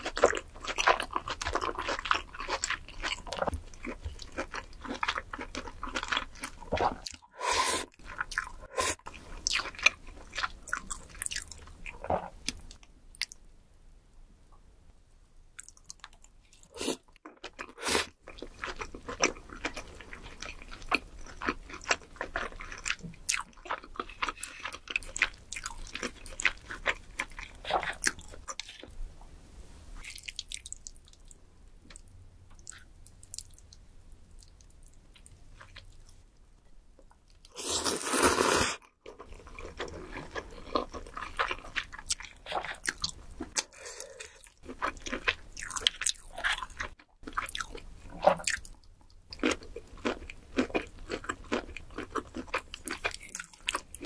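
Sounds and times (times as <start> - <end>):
wet chewing and smacking: 39.0 - 54.0.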